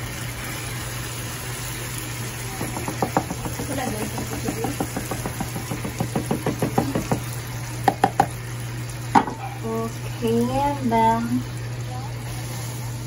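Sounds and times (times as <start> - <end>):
cooker humming: 0.0 - 13.0
spatula knocking on a carton: 2.6 - 7.3, 7.9 - 8.3.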